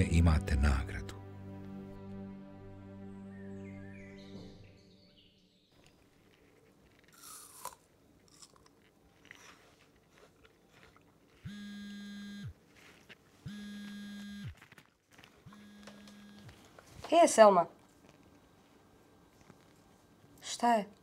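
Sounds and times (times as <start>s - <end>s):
faint small rustles: 5.8s - 7.2s
smartphone vibrating: 11.4s - 12.6s, 13.4s - 14.6s, 15.5s - 16.6s.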